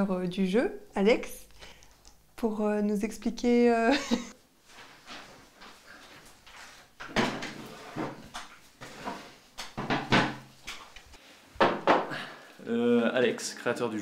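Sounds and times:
chair knocks and bumps: 7.0 - 10.8, 11.6 - 12.2.

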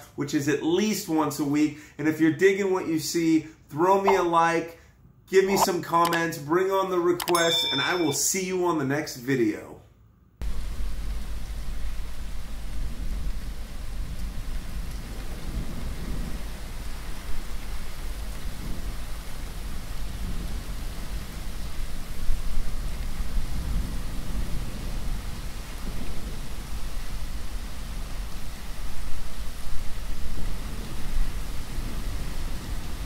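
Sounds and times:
rain falling: 10.4 - 33.0.

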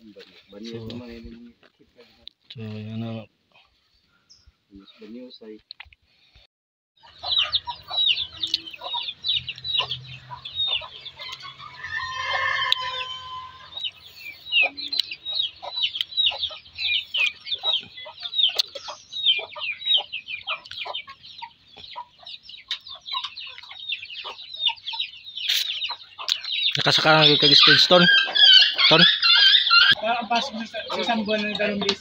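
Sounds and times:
chicks peeping: 7.0 - 32.0
rooster crowing: 10.3 - 13.9, 27.3 - 30.0.

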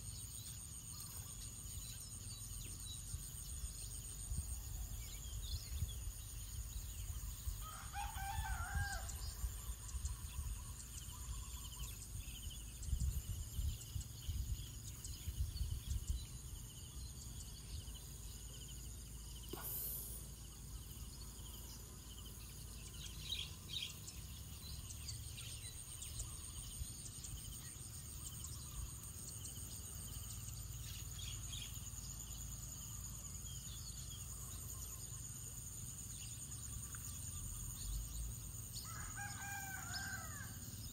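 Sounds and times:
insects droning: 0.0 - 40.9
rooster crowing: 7.6 - 9.3, 38.8 - 40.6.

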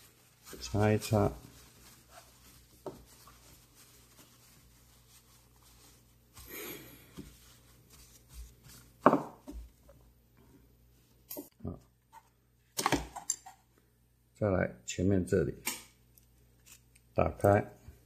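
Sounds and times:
tissue paper rustling: 0.0 - 9.7.

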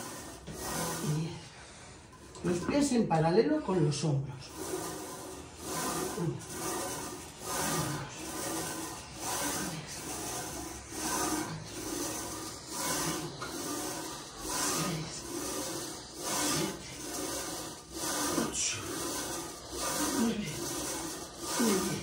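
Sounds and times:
heavy rhythmic breathing: 4.4 - 22.0.

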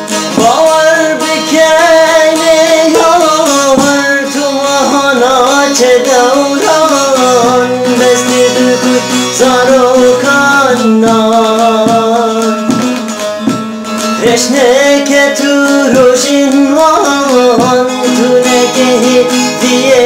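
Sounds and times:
long-necked lute strummed: 0.0 - 20.0
man singing: 0.0 - 20.0.

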